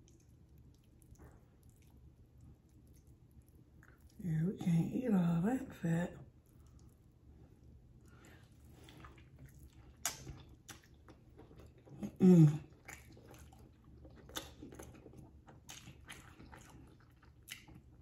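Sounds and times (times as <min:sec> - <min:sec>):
person chewing with lip-smacking: 0:00.0 - 0:04.2, 0:06.4 - 0:18.0
short hummed vocal sound: 0:12.0 - 0:12.7.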